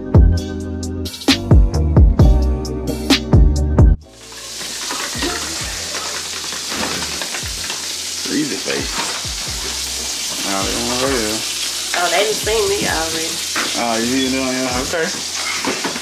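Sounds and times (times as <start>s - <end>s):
food sizzling in a pan: 4.0s - 16.0s.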